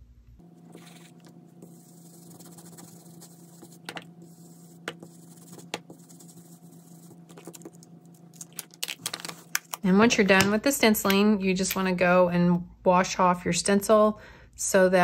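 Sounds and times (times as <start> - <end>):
steady low hum: 0.0 - 13.0
brush scratching on paper: 0.6 - 8.2
brush taps: 0.7 - 8.2.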